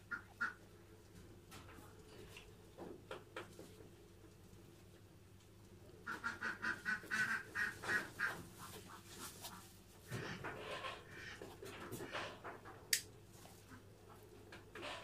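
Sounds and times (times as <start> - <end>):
nasal quack-like animal calls: 6.0 - 12.4.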